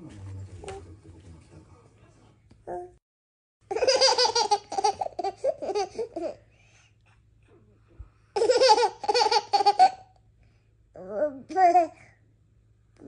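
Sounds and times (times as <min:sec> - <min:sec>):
baby giggling: 0:03.7 - 0:06.4, 0:08.4 - 0:10.1.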